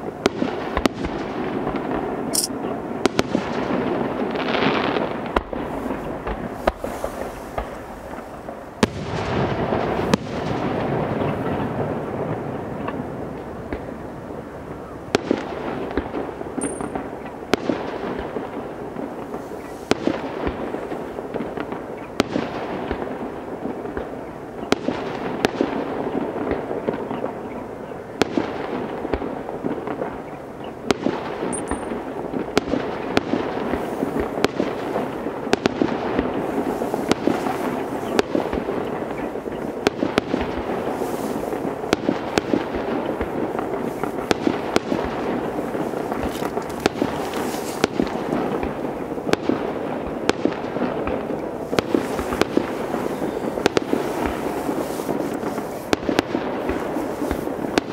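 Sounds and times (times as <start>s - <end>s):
fireworks crackling: 0.0s - 57.9s
firework shells bursting: 2.3s - 3.2s, 15.9s - 17.4s, 31.5s - 32.0s, 33.8s - 48.8s.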